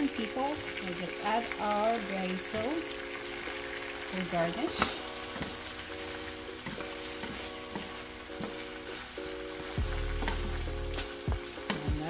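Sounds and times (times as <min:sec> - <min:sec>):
food sizzling in a hot pan: 0:00.0 - 0:12.0
soft background music: 0:00.0 - 0:12.0
wooden spatula scraping a pan: 0:03.3 - 0:12.0.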